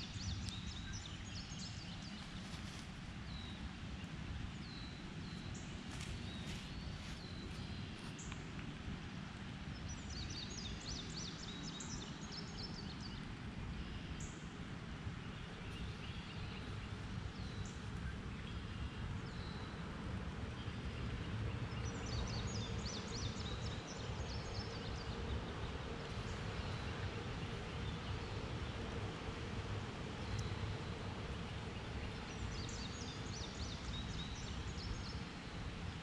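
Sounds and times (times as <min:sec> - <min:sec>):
songbird singing: 0:00.0 - 0:08.6, 0:09.7 - 0:14.5, 0:15.2 - 0:36.0.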